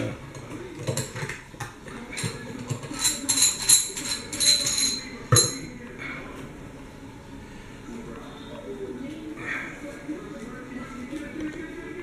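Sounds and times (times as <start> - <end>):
metal fittings clinking: 2.2 - 5.7.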